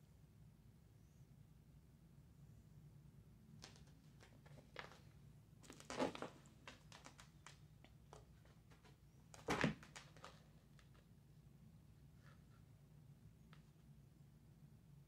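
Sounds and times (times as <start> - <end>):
cat claws scratching fabric: 3.6 - 11.2
rustling: 3.6 - 11.2.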